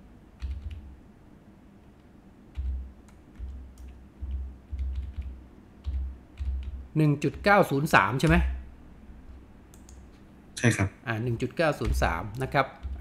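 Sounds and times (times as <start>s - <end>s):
computer keyboard typing: 0.4s - 0.9s, 2.5s - 8.5s, 9.7s - 10.0s, 11.7s - 13.0s.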